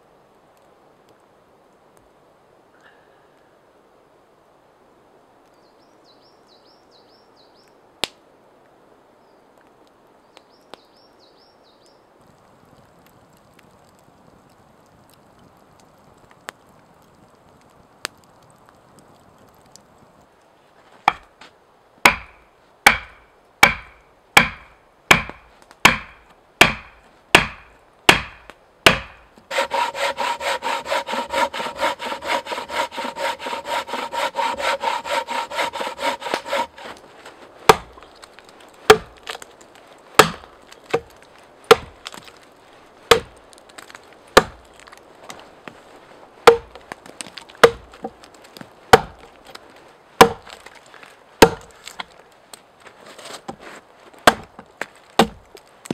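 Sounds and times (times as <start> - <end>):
axe chopping log: 22.0 - 37.0, 37.7 - 38.0, 38.9 - 39.4, 40.2 - 42.4, 43.1 - 45.0, 46.4 - 49.2, 50.2 - 50.8, 51.4 - 52.0, 54.2 - 55.9
sharp wooden knocks: 22.1 - 36.9, 37.7 - 37.9, 38.9 - 39.2, 40.2 - 41.1, 41.7 - 42.2, 43.1 - 43.3, 46.5 - 46.8, 47.6 - 48.2, 50.2 - 50.5, 51.4 - 51.7, 55.2 - 55.4
bow saw cutting log: 25.9 - 37.0.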